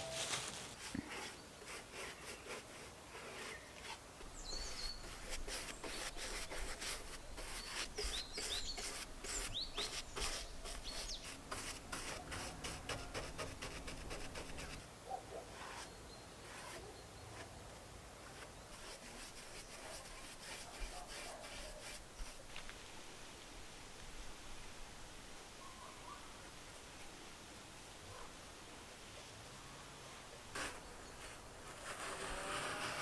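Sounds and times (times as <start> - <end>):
paintbrush scrubbing wood: 0.7 - 4.0, 4.6 - 14.8, 15.6 - 16.8, 18.4 - 22.4
small birds chirping: 3.4 - 6.4, 7.0 - 11.4.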